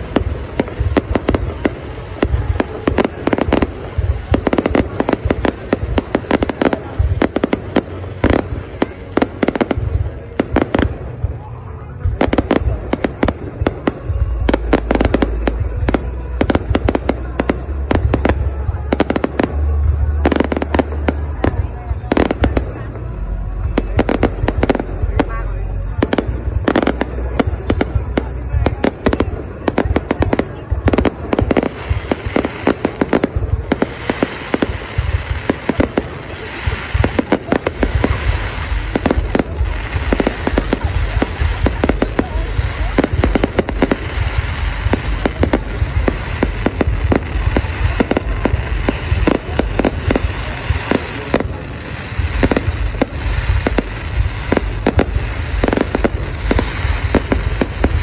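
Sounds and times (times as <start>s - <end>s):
fireworks crackling pops: 0.0s - 58.0s
steady low rumble: 0.0s - 58.0s.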